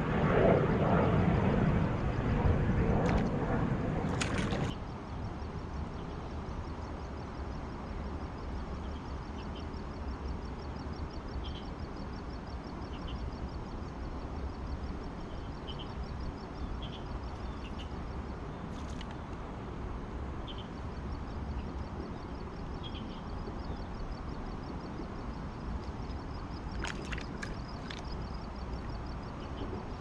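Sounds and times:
small birds chirping: 15.1s - 19.3s.

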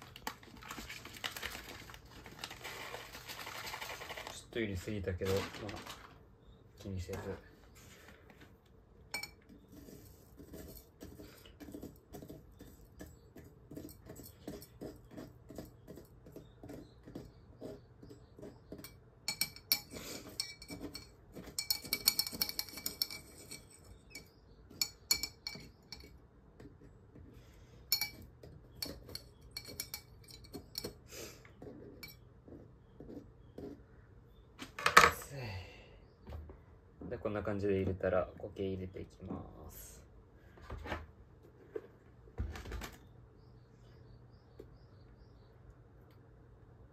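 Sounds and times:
metal clinking on glass: 9.1s - 9.4s, 18.8s - 26.1s, 27.9s - 30.9s.

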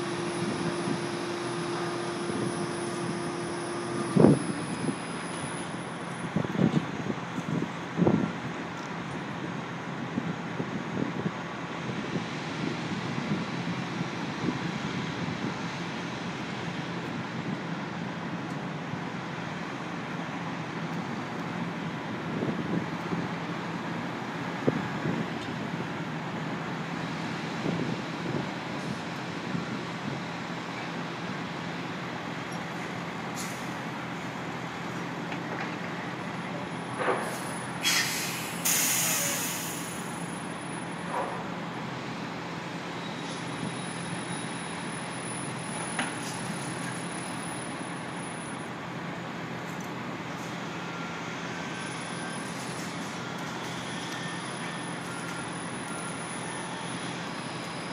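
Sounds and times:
heavy machinery drone: 0.0s - 6.5s
air brakes hissing: 33.4s - 33.8s, 37.0s - 40.4s.

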